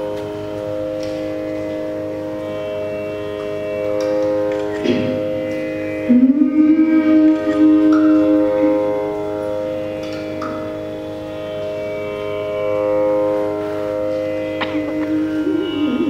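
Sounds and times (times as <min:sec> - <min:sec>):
tanpura drone: 0:00.0 - 0:16.0
held melodic note: 0:14.3 - 0:16.0.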